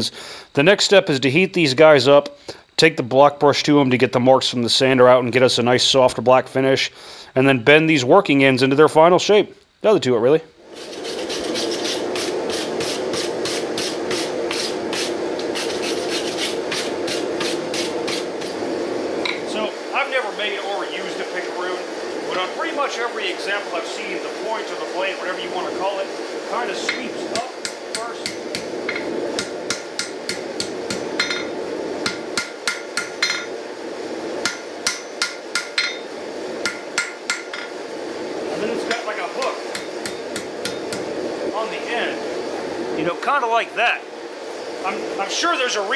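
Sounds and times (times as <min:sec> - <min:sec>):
wire brush scrubbing steel: 0:10.7 - 0:18.6
hammer striking steel on anvil: 0:26.9 - 0:33.5, 0:34.4 - 0:37.7, 0:38.9 - 0:41.1.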